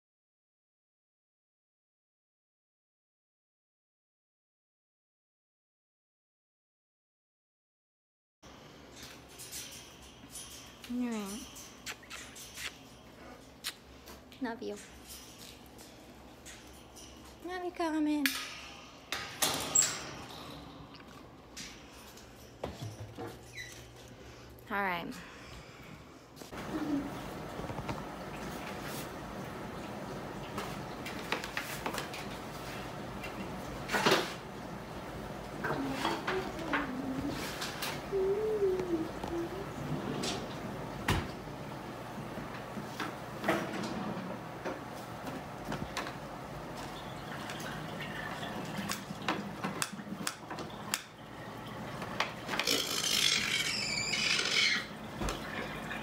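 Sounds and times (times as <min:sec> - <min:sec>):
room hum: 0:08.5 - 0:56.0
toucan harsh rasping call: 0:52.7 - 0:54.9.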